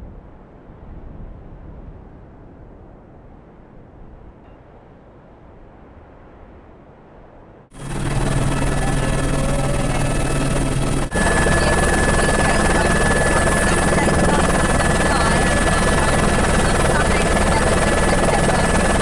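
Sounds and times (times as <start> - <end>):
constant high whine: 0.0 - 19.0
helicopter rotor and engine noise: 7.7 - 19.0.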